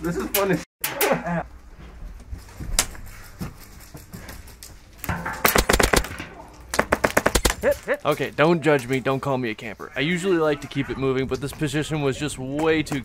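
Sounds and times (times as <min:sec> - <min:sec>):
airsoft rifle full-auto burst: 0:05.5 - 0:06.1, 0:06.9 - 0:07.6.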